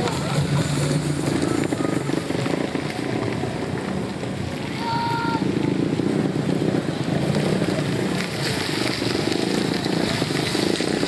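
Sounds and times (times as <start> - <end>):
minivan engine running: 0.0 - 11.0
tyres rolling on rough road: 0.0 - 11.0.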